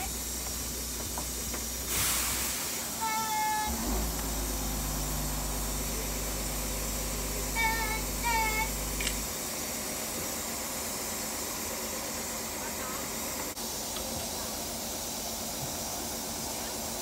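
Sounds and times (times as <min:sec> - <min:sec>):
air hissing: 0:00.0 - 0:09.7
low engine hum: 0:03.4 - 0:10.8.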